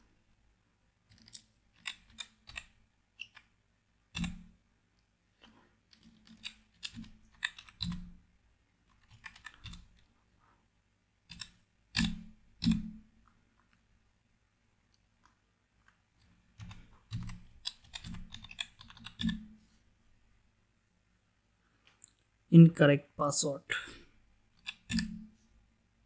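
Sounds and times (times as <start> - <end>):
typing on a keyboard: 1.1 - 3.5, 5.9 - 8.2, 8.9 - 10.1, 16.6 - 19.4.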